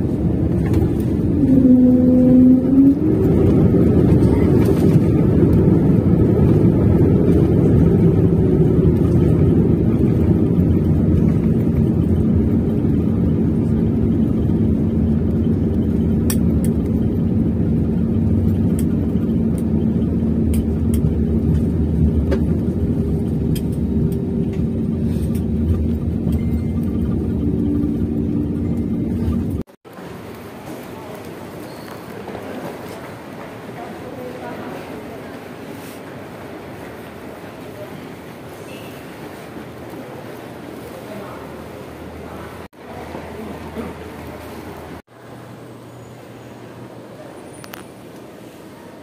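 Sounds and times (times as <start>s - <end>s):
steady hum: 0.0s - 30.4s
airliner engines droning: 0.0s - 49.0s
wheels rumbling on runway: 0.0s - 49.0s.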